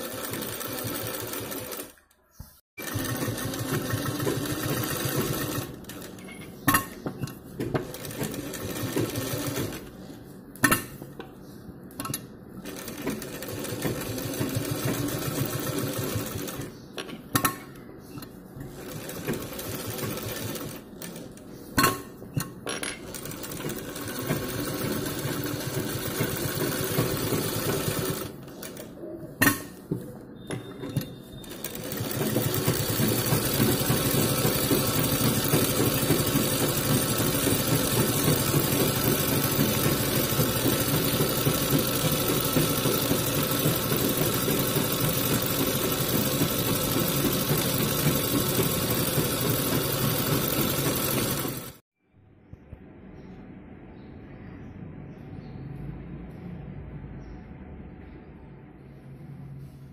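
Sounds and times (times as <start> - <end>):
sewing machine stitching: 0.0 - 2.1, 2.8 - 9.9, 12.0 - 16.7, 18.2 - 21.4, 22.4 - 29.6, 30.4 - 51.8.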